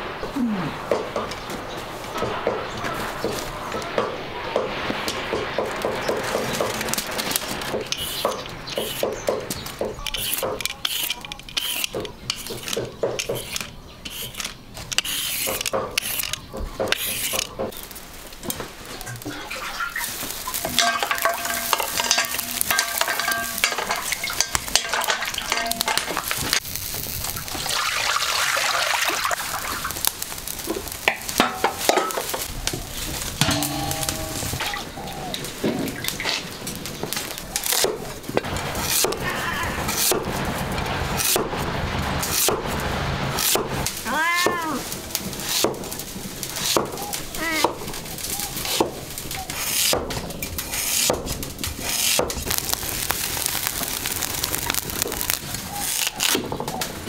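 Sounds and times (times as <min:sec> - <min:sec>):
utensil scraping pan: 0:10.1 - 0:17.8, 0:19.0 - 0:26.6, 0:49.5 - 0:52.7
food sizzling in a pan: 0:19.0 - 0:32.5, 0:51.8 - 0:56.1.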